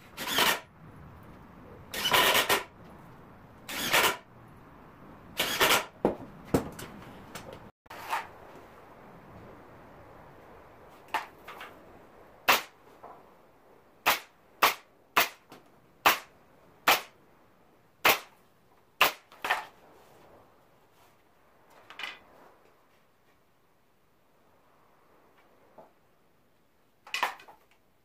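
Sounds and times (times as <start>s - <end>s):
pneumatic nailer firing: 0.1s - 0.7s, 1.9s - 2.7s, 3.7s - 4.2s, 5.4s - 6.0s
knocks on wood: 6.0s - 6.9s.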